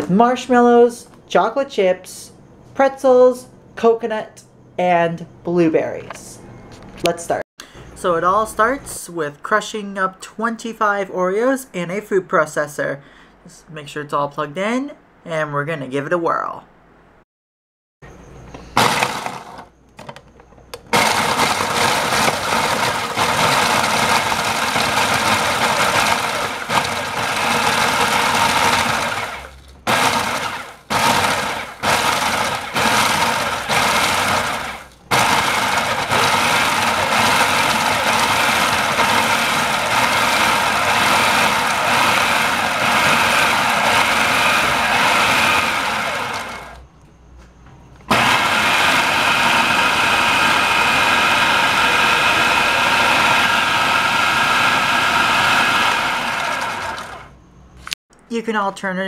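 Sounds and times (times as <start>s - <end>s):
food processor chopping cookies: 18.8s - 19.7s, 20.9s - 46.8s, 48.1s - 57.3s.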